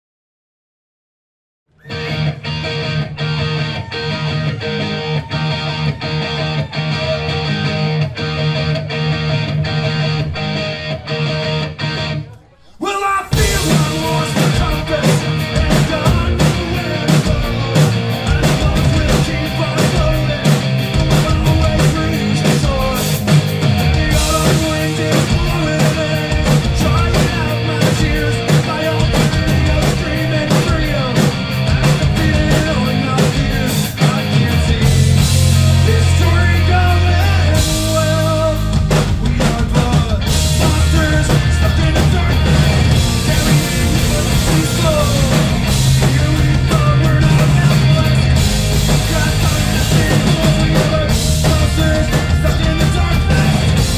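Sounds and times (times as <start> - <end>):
electric guitar: 1.7 - 12.7, 13.3 - 53.9
live rock band: 1.8 - 53.9
drum and cymbal hits: 13.3 - 36.7, 37.5 - 53.9.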